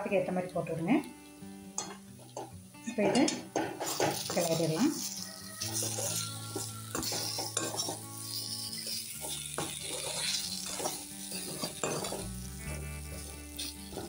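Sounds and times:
potatoes frying in oil: 0.0 - 14.0
spatula clinking against pan: 1.8 - 2.5, 3.1 - 12.2
spatula scraping metal pan: 1.8 - 14.0.

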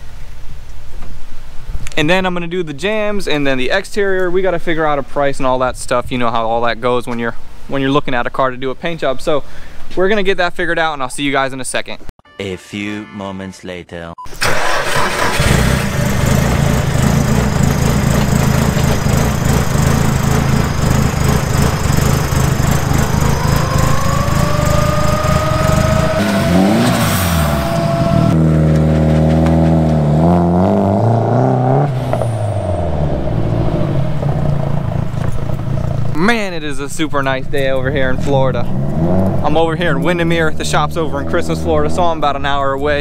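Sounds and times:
car engine running and revving: 15.3 - 36.2, 37.7 - 42.1
rising whine: 15.8 - 36.0.

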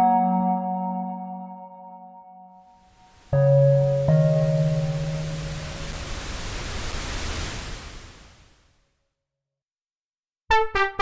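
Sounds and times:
hissing noise: 2.8 - 8.7.

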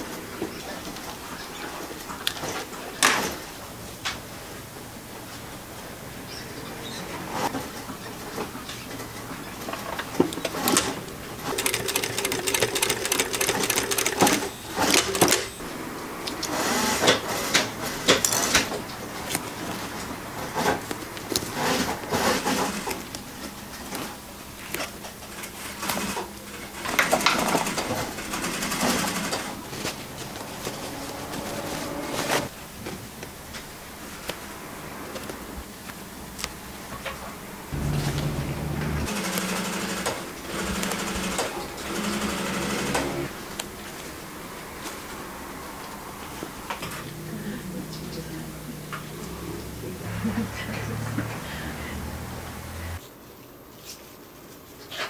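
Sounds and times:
sewing machine stitching: 10.4 - 15.6, 25.5 - 30.0, 37.8 - 43.3.

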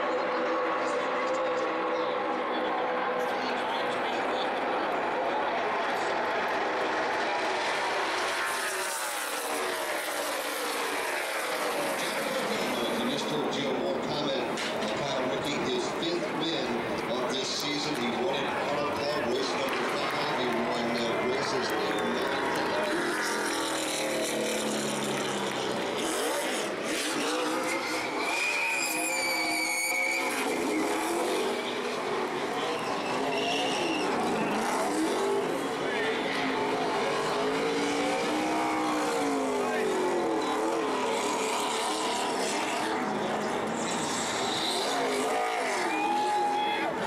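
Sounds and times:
race car engines passing: 0.0 - 47.0
high tyre squeal: 26.0 - 47.0.

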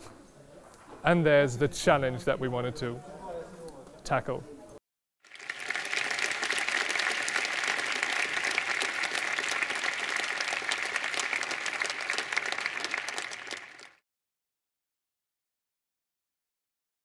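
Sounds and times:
audience applauding: 5.2 - 14.0.

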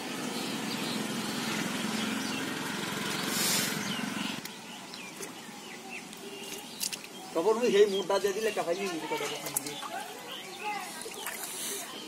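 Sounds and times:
small engine running: 0.0 - 4.4
birds chirping: 0.0 - 12.0.

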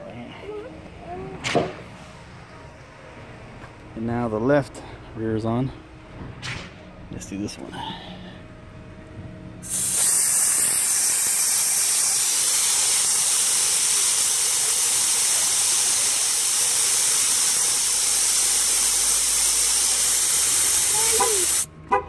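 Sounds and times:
air hissing from tyre valve: 9.6 - 21.7.

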